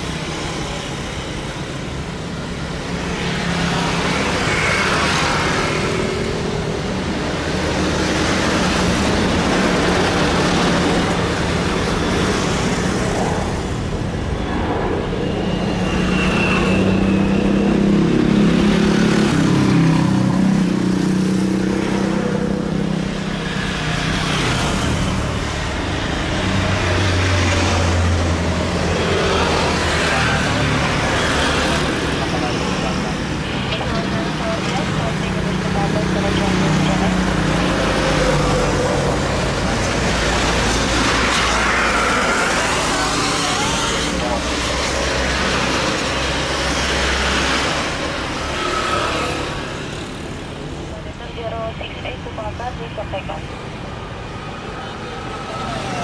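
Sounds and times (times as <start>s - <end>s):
jet engines taxiing: 0.0s - 56.0s
road traffic noise: 0.0s - 56.0s
high whine: 12.0s - 18.8s.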